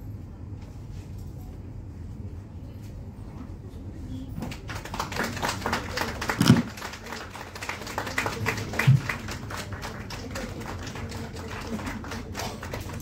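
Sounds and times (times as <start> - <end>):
audience applauding: 4.5 - 13.0.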